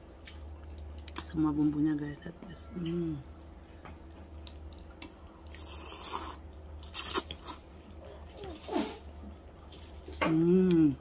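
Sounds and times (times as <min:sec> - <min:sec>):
person slurping noodles: 0:05.6 - 0:07.6.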